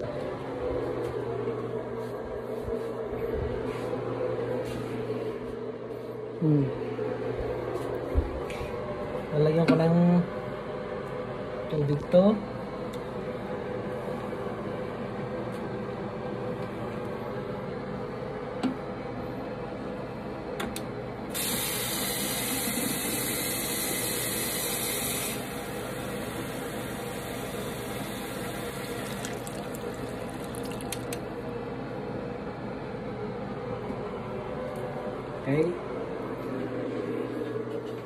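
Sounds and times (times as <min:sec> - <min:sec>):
tap water filling plastic bottle: 0:28.8 - 0:31.2.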